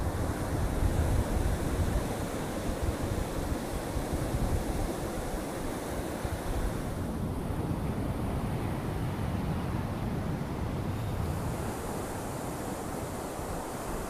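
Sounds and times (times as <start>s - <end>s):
ocean surf breaking: 0.0s - 7.5s, 10.9s - 14.0s
wind rumble on microphone: 0.0s - 14.0s.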